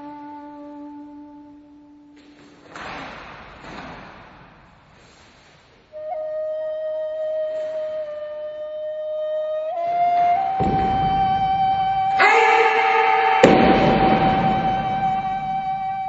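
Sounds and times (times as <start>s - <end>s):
solo flute music: 0.0s - 2.2s, 5.9s - 16.0s.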